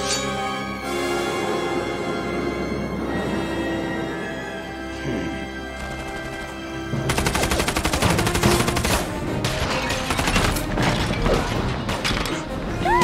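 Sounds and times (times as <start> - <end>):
film music score: 0.0 - 13.0
rapid automatic gunfire: 7.1 - 9.2.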